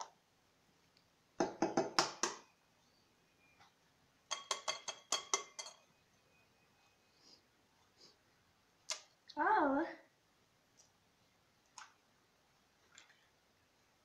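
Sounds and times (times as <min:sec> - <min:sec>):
eggshell tapping on glass bowl: 0:04.3 - 0:05.8.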